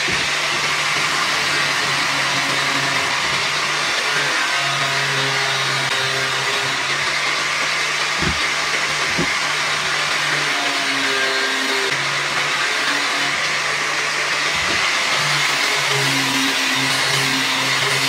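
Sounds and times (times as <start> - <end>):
angle grinder sanding bamboo: 0.0 - 18.0
short knocks: 8.2 - 8.5.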